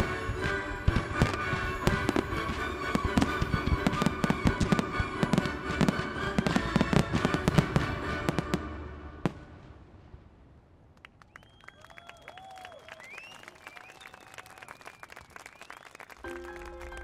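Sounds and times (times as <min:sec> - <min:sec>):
music: 0:00.0 - 0:09.5, 0:16.2 - 0:17.0
firework bangs: 0:00.0 - 0:11.2
firework crackle: 0:00.0 - 0:11.5.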